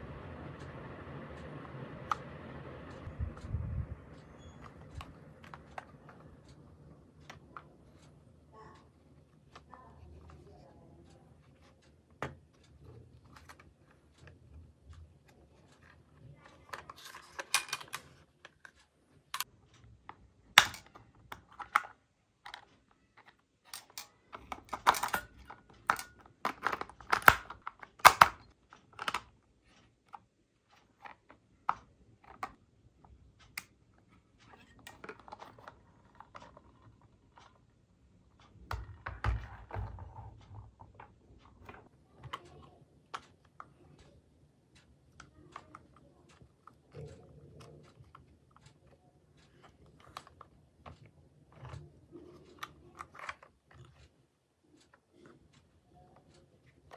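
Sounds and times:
plastic toy cars clicking on table: 11.4s - 56.9s.

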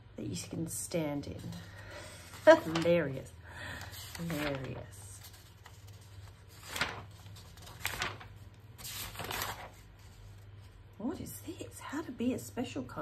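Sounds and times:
magazine pages rustling: 1.4s - 10.8s.

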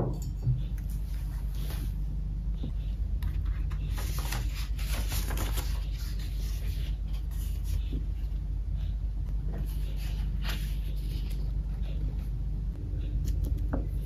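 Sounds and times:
steady low hum: 0.0s - 14.0s
paper rustling: 3.2s - 8.0s, 9.6s - 12.2s.

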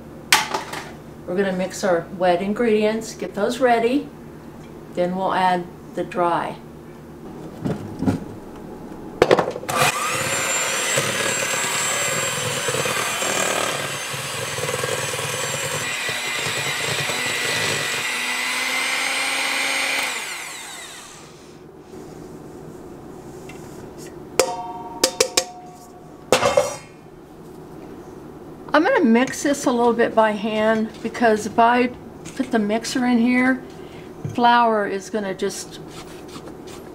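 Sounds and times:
electric hand mixer whirring: 9.7s - 21.6s
metal bowl clinks: 24.4s - 26.9s.

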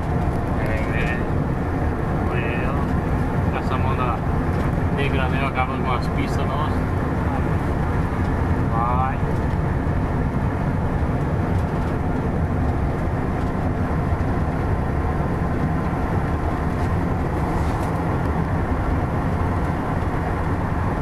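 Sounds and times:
vehicle engine and tyre drone: 0.0s - 21.0s.

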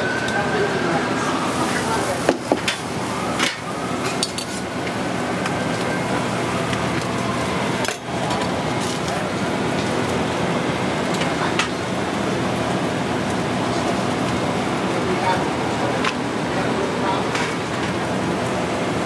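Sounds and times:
kitchen background noise: 0.0s - 19.0s.

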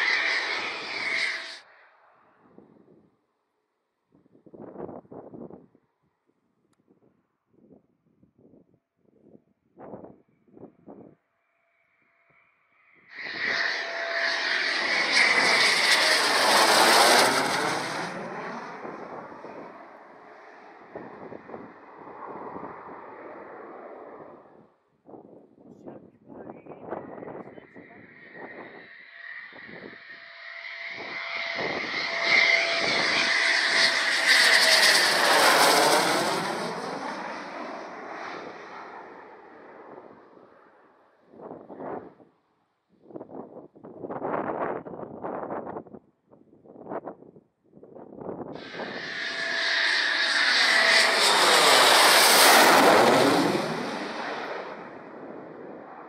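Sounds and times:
jet engines passing: 0.0s - 1.7s, 13.1s - 24.7s, 26.3s - 42.1s, 48.5s - 56.0s.

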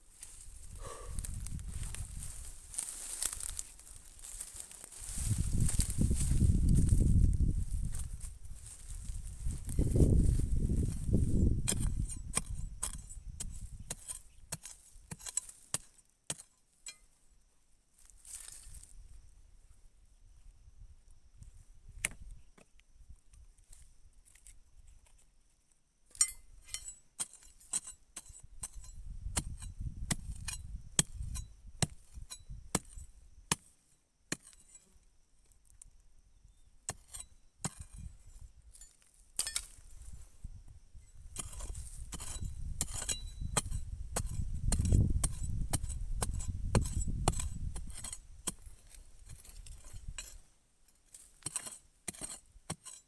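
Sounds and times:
metal blade striking stony soil: 11.6s - 17.2s, 26.1s - 33.7s, 34.3s - 34.9s, 36.9s - 39.9s, 41.3s - 53.0s.

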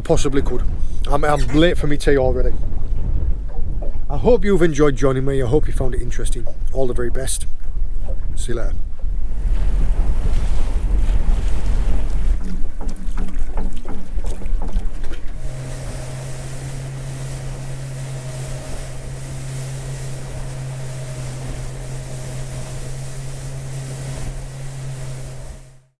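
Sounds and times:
wind buffeting microphone: 0.0s - 25.7s
outboard motor running: 7.7s - 26.0s
water rushing past hull: 7.7s - 26.0s.

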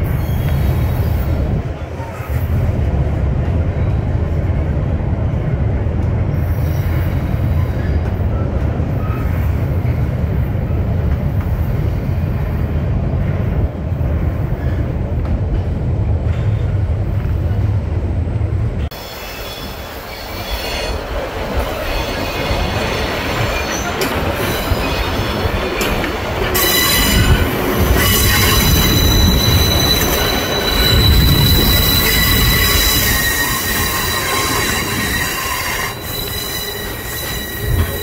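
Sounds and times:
train wheels rumbling: 0.0s - 38.0s
high-pitched wheel squeal: 26.6s - 38.0s.

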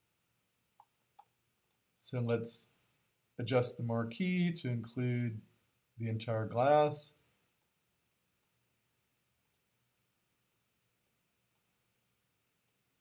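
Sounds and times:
computer mouse clicks: 9.4s - 9.7s.

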